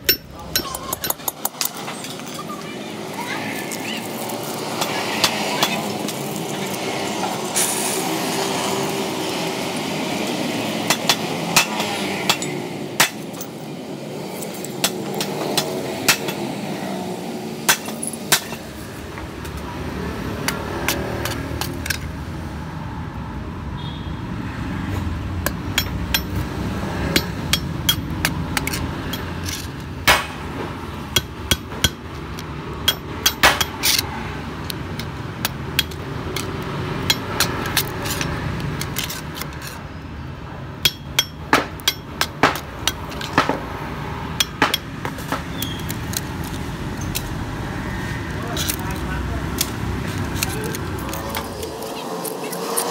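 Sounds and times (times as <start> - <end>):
metal rod tapping steel: 0.0 - 1.9, 25.4 - 26.4, 34.9 - 39.5, 40.8 - 43.6.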